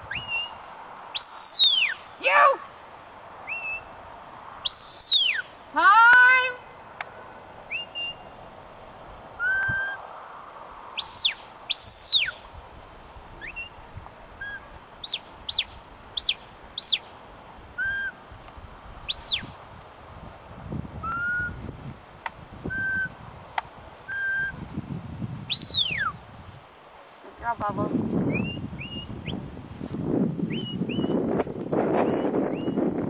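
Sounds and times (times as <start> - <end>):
sharp whistles: 0.0 - 2.1, 3.4 - 4.0, 4.6 - 5.6, 7.7 - 8.4, 9.4 - 10.0, 11.0 - 12.5, 13.4 - 13.8, 14.4 - 17.2, 17.8 - 18.2, 19.1 - 19.6, 21.0 - 21.6, 22.7 - 23.2, 24.1 - 24.6, 25.5 - 26.2, 28.2 - 29.5, 30.4 - 33.0.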